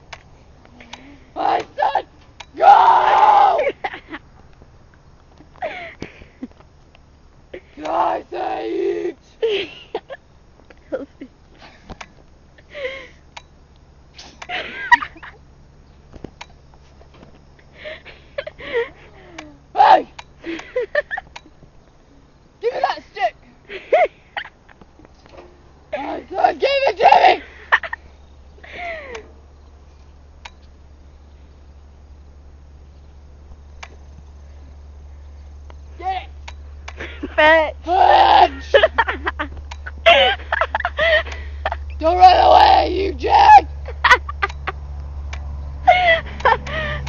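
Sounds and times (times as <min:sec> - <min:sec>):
faint insect chirping: 0:00.0 - 0:47.0
steady low hum: 0:00.0 - 0:47.0
sharp clicks: 0:00.1 - 0:02.6, 0:13.3 - 0:14.6, 0:19.3 - 0:21.7, 0:29.0 - 0:30.8, 0:33.7 - 0:34.3, 0:35.5 - 0:37.1, 0:39.4 - 0:40.0, 0:44.3 - 0:45.6.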